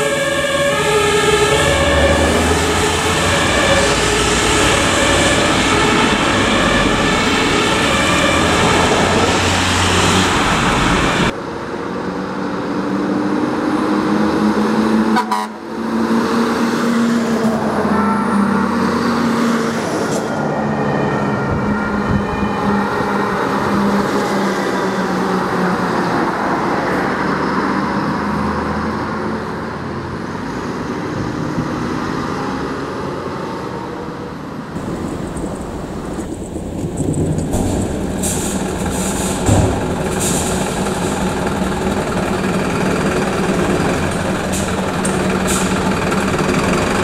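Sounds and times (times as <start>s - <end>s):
two-tone sirens: 0.0s - 12.4s, 13.5s - 30.2s
diesel engine noise: 0.0s - 47.0s.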